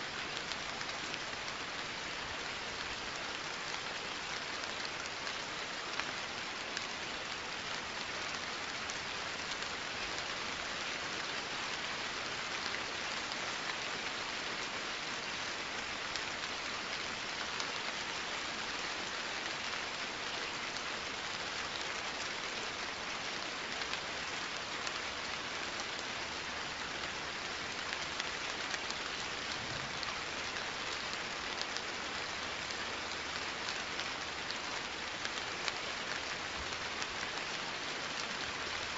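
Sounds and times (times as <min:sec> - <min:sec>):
steady rain: 0:00.0 - 0:38.9
raindrop ticks: 0:27.8 - 0:34.6.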